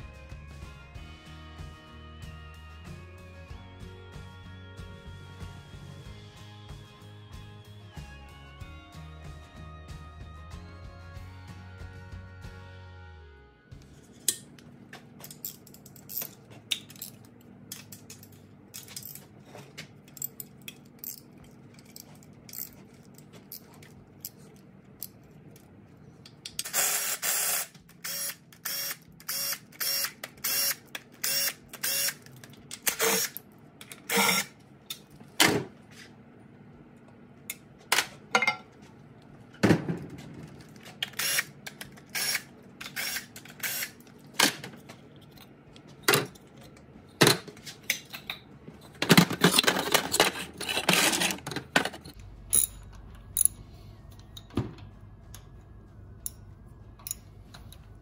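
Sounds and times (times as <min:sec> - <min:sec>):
metal clinks: 0:52.2 - 0:54.5.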